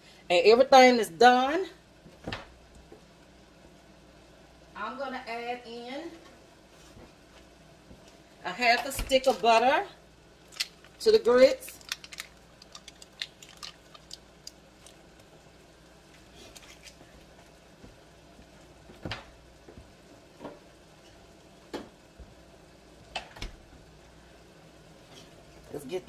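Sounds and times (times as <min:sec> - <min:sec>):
paper wrapper crinkling: 0:10.4 - 0:15.2, 0:16.4 - 0:17.0.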